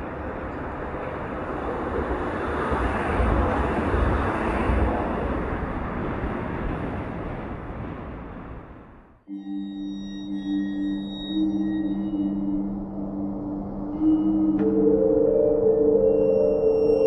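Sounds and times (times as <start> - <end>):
deep gusty rumble: 0.0 - 9.2.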